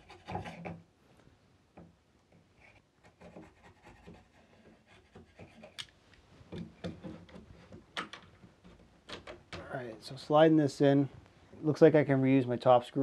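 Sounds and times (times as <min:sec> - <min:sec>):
chisel scraping wood: 0:00.0 - 0:00.8, 0:02.6 - 0:05.8, 0:06.6 - 0:07.9.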